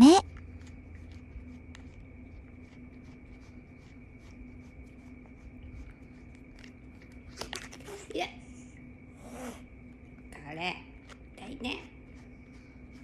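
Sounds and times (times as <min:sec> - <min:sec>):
faint hum: 0:00.0 - 0:13.0
brush stroking cat fur: 0:00.2 - 0:08.1, 0:11.0 - 0:13.0.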